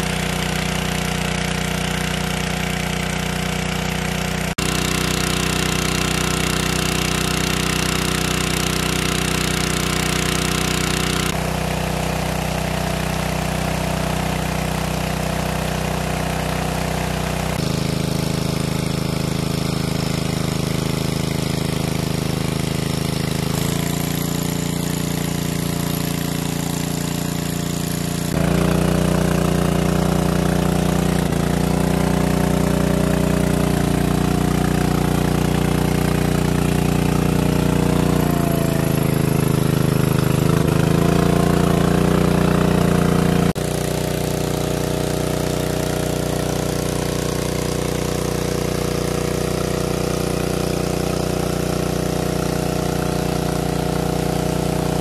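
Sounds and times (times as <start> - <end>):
water pump engine running: 0.0 - 55.0.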